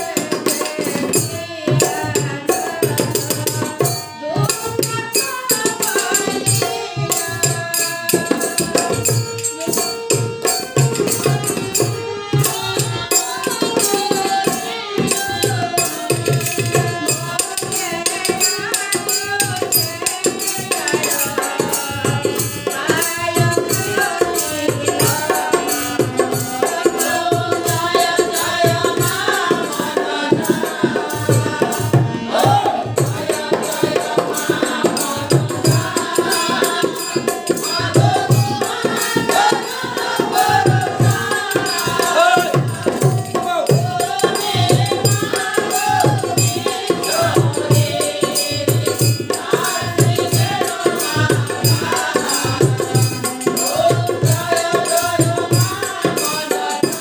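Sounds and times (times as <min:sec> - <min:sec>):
voices singing in chorus: 0:00.0 - 0:57.0
hand drum beating: 0:15.2 - 0:57.0.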